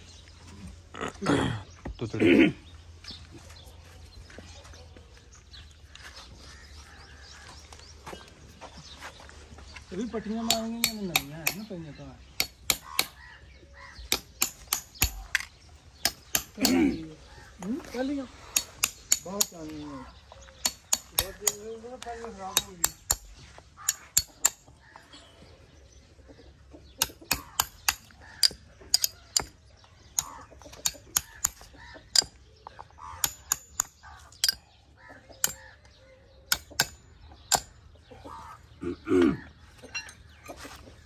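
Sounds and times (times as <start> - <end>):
hammer tapping nails into horseshoe: 10.4 - 11.7, 12.4 - 13.2, 14.1 - 16.8, 18.6 - 19.6, 20.6 - 21.7, 22.5 - 24.7, 27.0 - 29.6, 30.2 - 32.4, 33.2 - 34.6, 35.4 - 35.7, 36.5 - 37.7.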